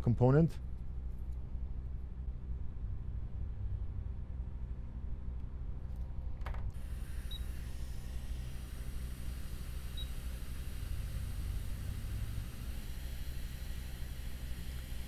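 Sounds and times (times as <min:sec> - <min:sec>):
steady low hum: 0:00.0 - 0:15.0
hot air blower hissing: 0:06.8 - 0:15.0.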